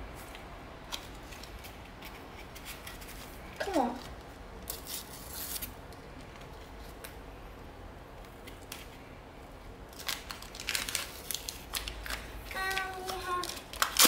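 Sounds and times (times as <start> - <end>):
foil wrapper crinkling and tearing: 4.0 - 5.8, 9.9 - 14.0.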